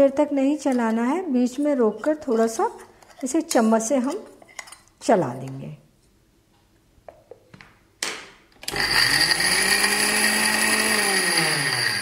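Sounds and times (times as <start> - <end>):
mixer grinder motor whining: 8.6 - 12.0.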